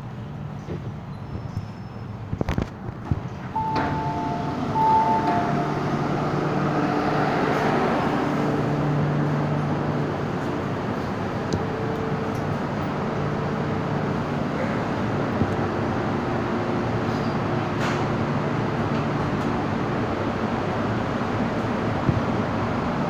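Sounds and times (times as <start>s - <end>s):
train ventilation hum: 0.0s - 23.0s
two-tone door chime: 3.6s - 7.6s.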